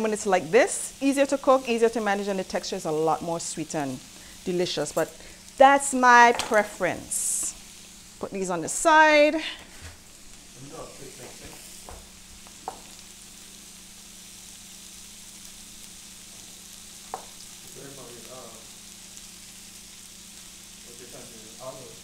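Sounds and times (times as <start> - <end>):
food sizzling in a pan: 0.0 - 22.0.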